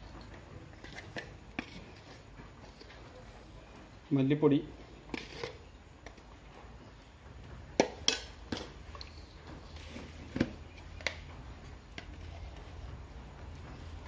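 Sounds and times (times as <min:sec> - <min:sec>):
utensils and dishes clinking: 0:07.8 - 0:10.0.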